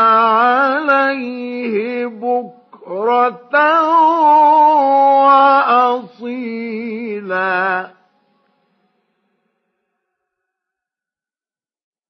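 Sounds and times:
man reciting in melodic chant: 0:00.0 - 0:08.1.

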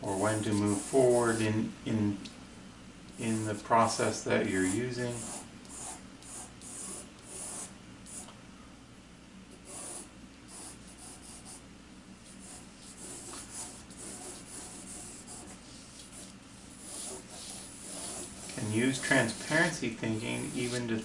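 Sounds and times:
pencil sketching on paper: 0:00.0 - 0:01.4, 0:03.4 - 0:08.3, 0:09.6 - 0:11.6, 0:12.4 - 0:21.0.

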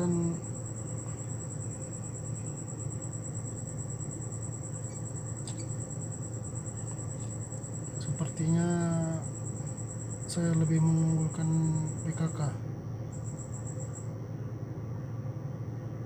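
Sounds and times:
high-pitched insect trill: 0:00.0 - 0:14.2
low background hum: 0:00.0 - 0:16.0.

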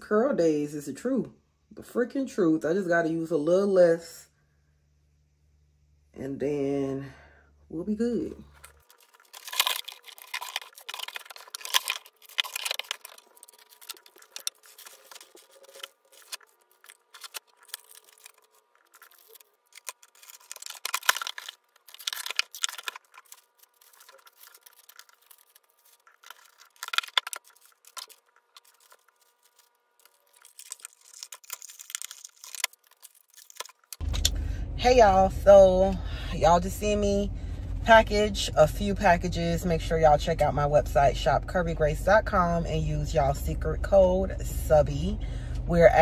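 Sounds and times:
packaging rustling and crinkling: 0:08.4 - 0:34.3.

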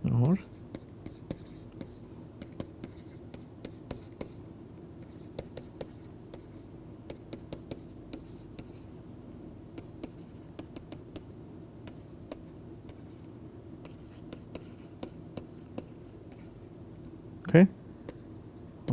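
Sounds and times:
stylus ticking and scratching: 0:00.2 - 0:08.9.

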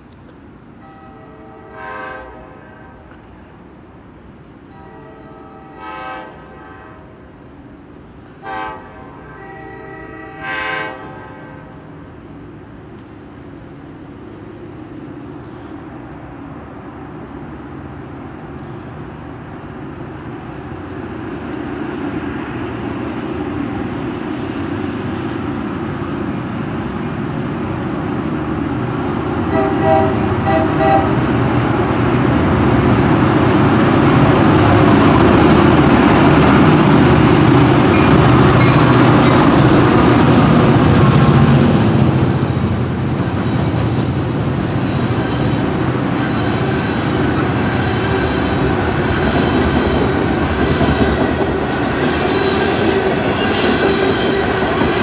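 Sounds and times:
train rumbling past: 0:00.0 - 0:55.0
train horn blasts: 0:00.8 - 0:03.4, 0:04.7 - 0:07.3, 0:08.3 - 0:11.9, 0:29.4 - 0:31.4.

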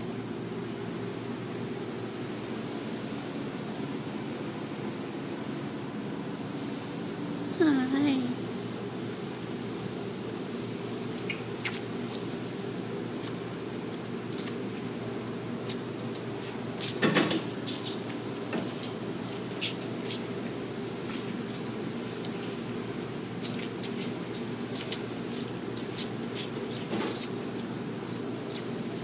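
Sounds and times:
calves sucking wet smacks: 0:10.8 - 0:15.0, 0:15.6 - 0:29.0.

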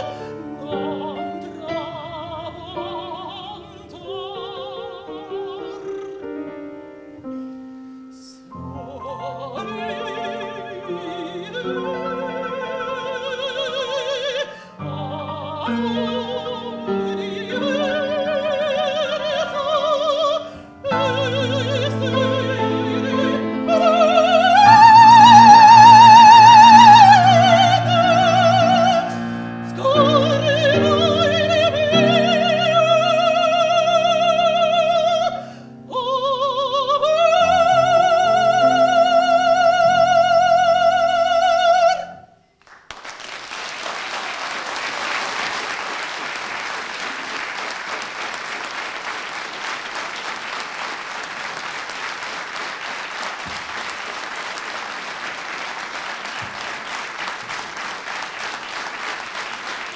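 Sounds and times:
operatic soprano singing: 0:00.0 - 0:06.6, 0:08.2 - 0:42.3
grand piano accompaniment: 0:00.0 - 0:42.2, 0:44.2 - 0:59.9
audience applauding: 0:42.6 - 0:59.9.

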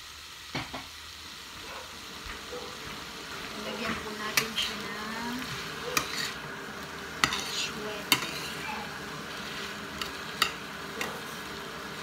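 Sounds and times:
low sizzle of frying: 0:00.0 - 0:12.0.

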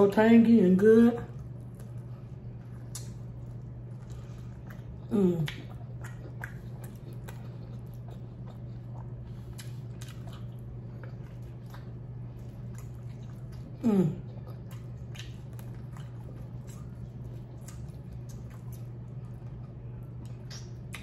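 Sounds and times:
low hum: 0:00.0 - 0:21.0
chewing and biting meat: 0:01.3 - 0:21.0
wet mouth clicks and smacks: 0:02.8 - 0:03.2, 0:20.3 - 0:21.0.

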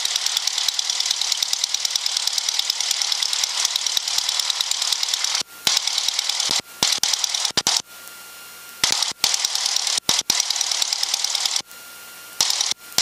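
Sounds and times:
propeller engine idling through headset: 0:00.0 - 0:07.5.

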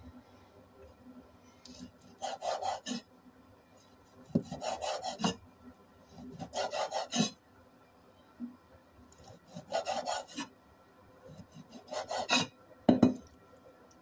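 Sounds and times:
cleaver cutting meat on wooden board: 0:11.8 - 0:12.5.

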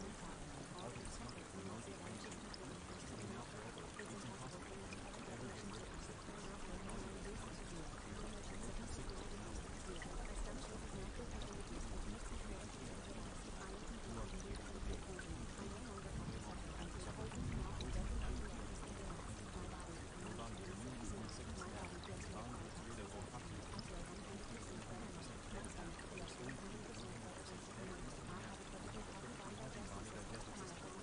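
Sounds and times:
water pouring and trickling: 0:00.0 - 0:31.0.

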